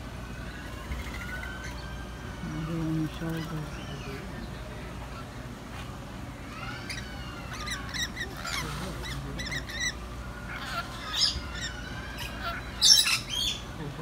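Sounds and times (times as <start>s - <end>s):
lorikeets chirping and squawking: 0.0s - 5.6s, 6.2s - 14.0s.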